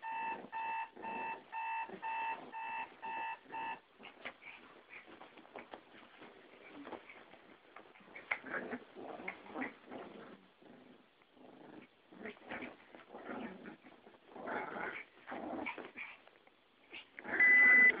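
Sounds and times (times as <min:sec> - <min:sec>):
dogs growling: 0:08.1 - 0:16.2.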